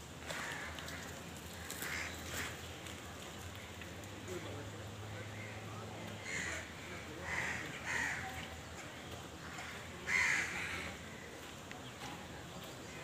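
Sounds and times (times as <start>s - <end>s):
crow cawing: 0.3s - 2.6s, 6.2s - 8.3s, 9.5s - 11.3s.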